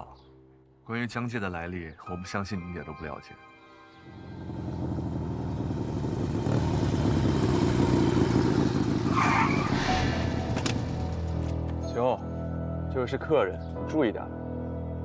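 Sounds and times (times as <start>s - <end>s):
motorcycle engine: 4.1s - 11.8s.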